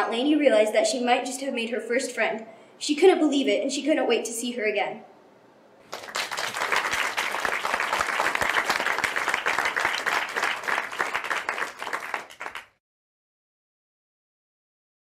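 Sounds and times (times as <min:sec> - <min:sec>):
applause: 0:05.8 - 0:12.8.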